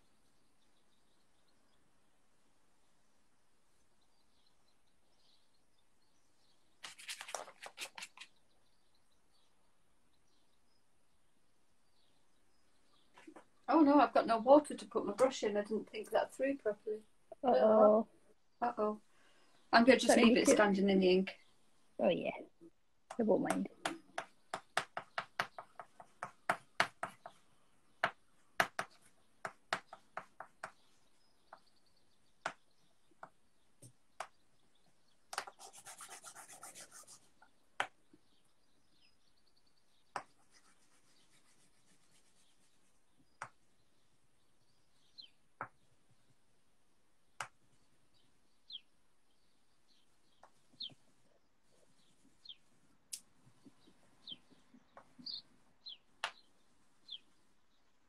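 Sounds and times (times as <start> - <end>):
faint bird chirps: 0.0 - 46.4, 47.2 - 52.7, 53.3 - 58.0
scratchy rubbing on paper: 6.8 - 8.4, 35.4 - 37.4, 40.2 - 43.1
pen clicks and taps on paper: 23.1 - 27.4, 28.0 - 30.8, 35.3 - 35.7, 40.1 - 40.4.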